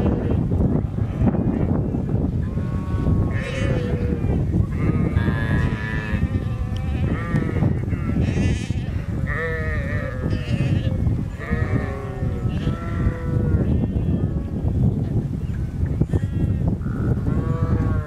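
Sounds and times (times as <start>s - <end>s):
sheep bleating: 2.5s - 14.2s.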